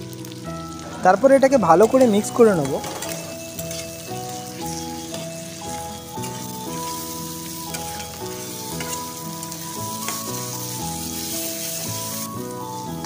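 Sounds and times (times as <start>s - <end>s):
background music: 0.0s - 13.0s
food sizzling in hot oil: 0.0s - 13.0s
spatula scraping a pan: 1.8s - 12.1s.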